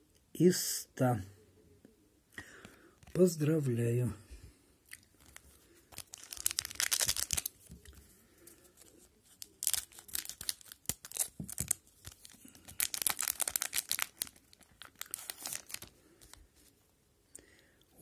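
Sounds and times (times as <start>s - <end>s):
plastic wrapper crinkling and tearing: 5.0s - 8.0s, 8.7s - 16.7s.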